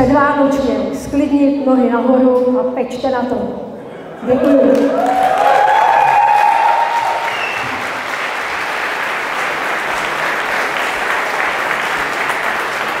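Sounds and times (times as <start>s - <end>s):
audience applauding: 4.2s - 13.0s.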